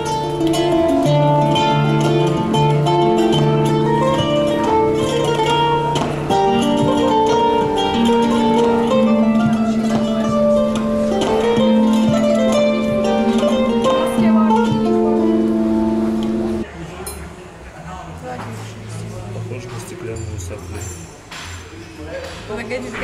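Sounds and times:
instrumental music: 0:00.0 - 0:16.7.

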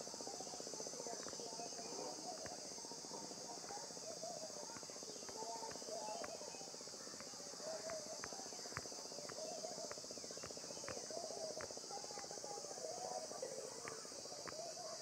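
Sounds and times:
soft ticks: 0:01.2 - 0:02.7, 0:04.6 - 0:12.4, 0:13.8 - 0:14.6.

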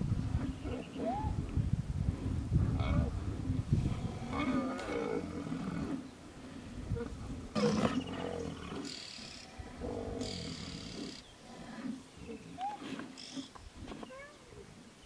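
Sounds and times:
rhino deep growl: 0:02.2 - 0:14.1
rhino low grunts: 0:02.7 - 0:14.0.

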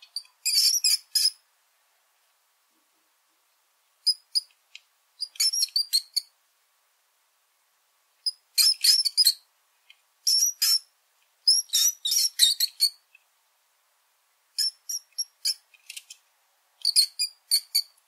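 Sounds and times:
small rodent squeaking: 0:00.0 - 0:01.4, 0:04.0 - 0:04.5, 0:05.2 - 0:06.3, 0:08.2 - 0:09.5, 0:10.2 - 0:13.1, 0:14.6 - 0:16.2, 0:16.8 - 0:18.0.

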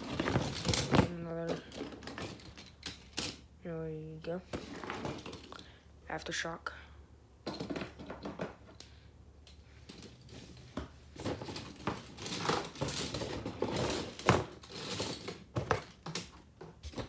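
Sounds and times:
toy trucks clattering together: 0:00.0 - 0:03.5, 0:11.2 - 0:17.0.

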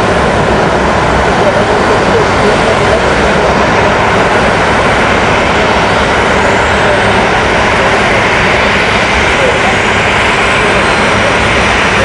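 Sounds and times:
turboprop engine and propeller noise: 0:00.0 - 0:12.0.

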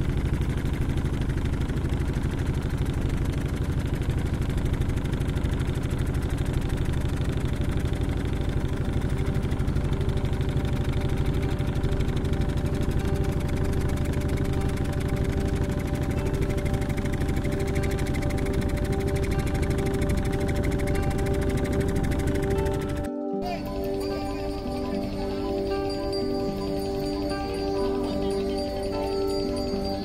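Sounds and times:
motorboat engine running: 0:00.0 - 0:30.0.

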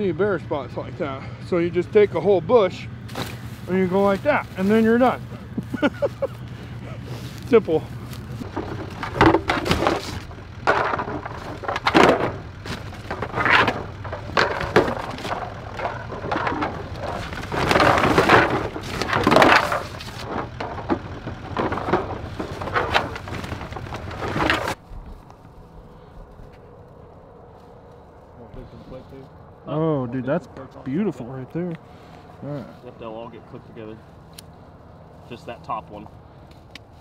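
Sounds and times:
fabric bag rustling: 0:03.1 - 0:10.6
plastic decoys clattering: 0:03.1 - 0:25.6.

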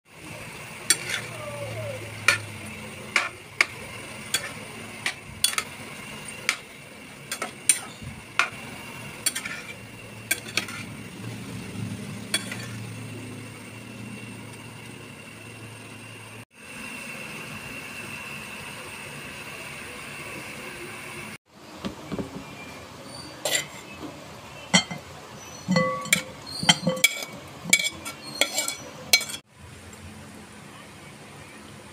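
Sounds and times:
food sizzling in a metal pan: 0:00.1 - 0:21.4, 0:23.1 - 0:24.0, 0:24.6 - 0:29.5
food scraped into bowl: 0:23.4 - 0:24.0, 0:26.6 - 0:29.4
utensil clinking against pan: 0:24.7 - 0:29.4.

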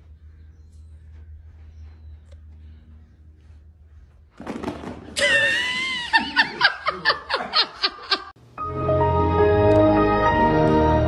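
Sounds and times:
person laughing: 0:05.2 - 0:08.4
background music: 0:08.4 - 0:11.0.

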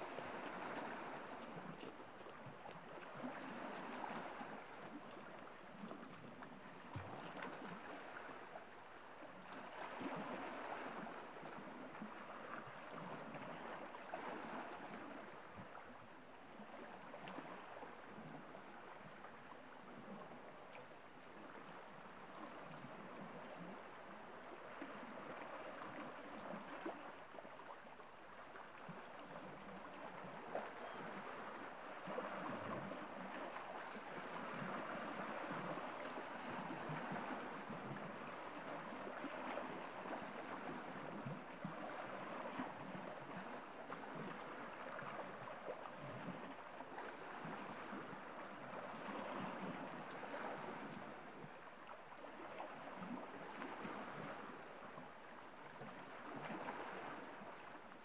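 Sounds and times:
waves lapping on rocks: 0:00.0 - 0:08.6
water clicking among stones: 0:01.3 - 0:03.2.

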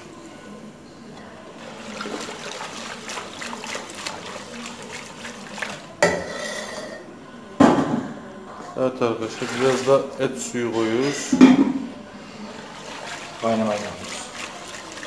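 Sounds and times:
liquid sloshing: 0:01.2 - 0:06.6, 0:09.2 - 0:15.0
whisk scraping a metal pot: 0:01.6 - 0:07.0, 0:12.4 - 0:15.0.

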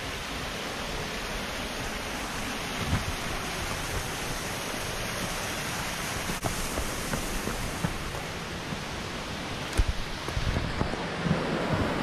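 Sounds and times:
mountain stream rushing: 0:00.0 - 0:12.0
light footsteps on trail: 0:09.6 - 0:11.0.

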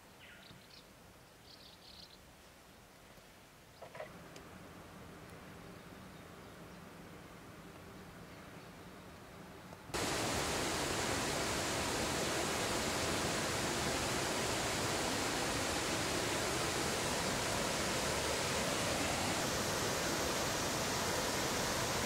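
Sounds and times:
steady rushing noise: 0:10.0 - 0:22.0.

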